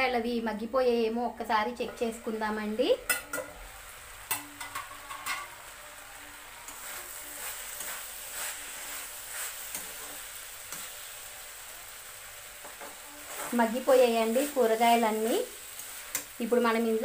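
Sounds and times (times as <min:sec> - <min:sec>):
vegetables sizzling: 0:00.0 - 0:17.0
spatula scraping pan: 0:06.7 - 0:11.1, 0:12.6 - 0:16.4.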